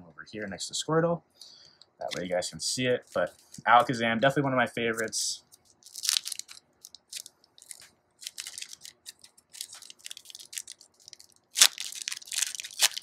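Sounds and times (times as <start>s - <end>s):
cards crinkling and rustling: 3.0s - 4.0s, 4.9s - 13.0s.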